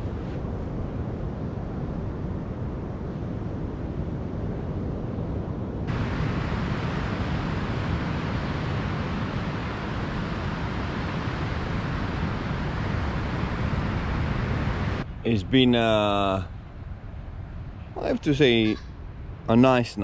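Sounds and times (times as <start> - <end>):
wind buffeting the microphone: 0.0 - 15.8
ocean surf on a beach: 0.0 - 20.0.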